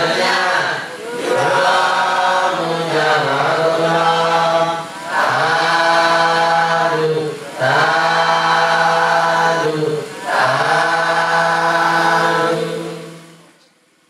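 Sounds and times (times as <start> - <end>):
low chanting: 0.0 - 13.6.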